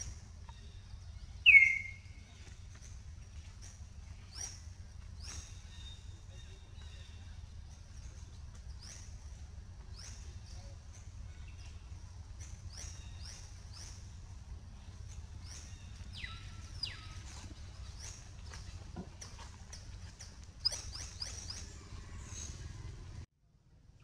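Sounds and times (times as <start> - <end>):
low steady rumble: 0.0 - 24.0
high-pitched animal chirps: 1.4 - 2.0.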